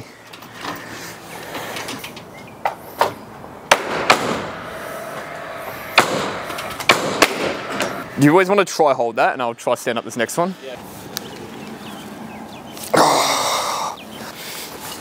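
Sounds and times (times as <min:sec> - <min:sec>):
steady rushing noise: 0:02.9 - 0:11.6
timber knocks and cracks: 0:03.0 - 0:04.4, 0:06.8 - 0:07.6.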